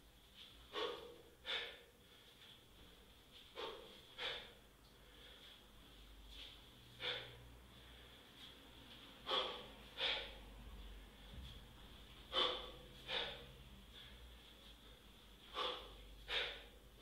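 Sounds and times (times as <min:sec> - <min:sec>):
sharp forceful exhales: 0:00.7 - 0:01.9, 0:03.5 - 0:05.6, 0:07.0 - 0:08.1, 0:09.2 - 0:10.5, 0:12.3 - 0:14.2, 0:15.5 - 0:16.8.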